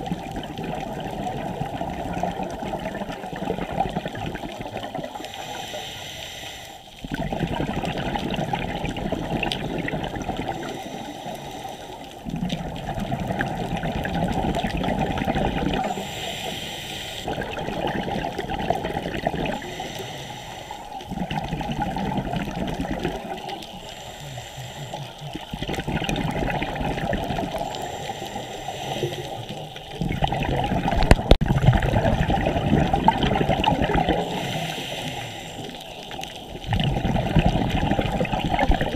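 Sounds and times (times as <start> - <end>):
bubbles gurgling underwater: 0.0 - 5.5, 7.0 - 10.9, 12.1 - 16.2, 17.3 - 19.8, 21.0 - 23.9, 25.0 - 38.9.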